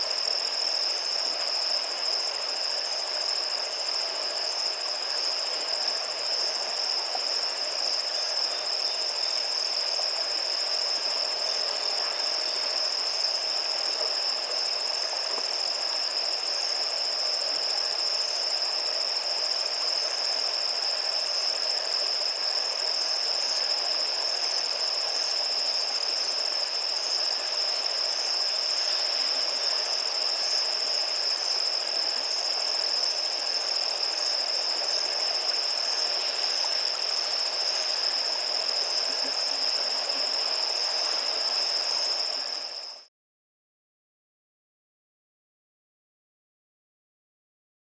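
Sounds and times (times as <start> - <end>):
crickets trilling: 0.0 - 43.0
insects hissing: 20.6 - 42.9.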